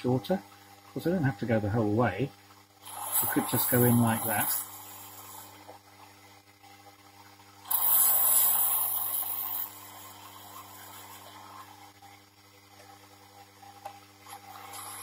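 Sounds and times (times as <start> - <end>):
hissing scrape of metal cutting: 2.8 - 5.6, 7.7 - 11.8.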